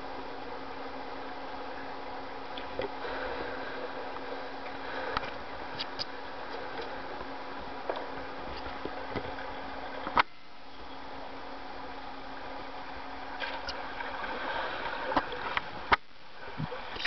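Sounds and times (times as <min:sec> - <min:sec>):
low hum: 0:00.0 - 0:17.0
underwater hiss: 0:14.2 - 0:15.5.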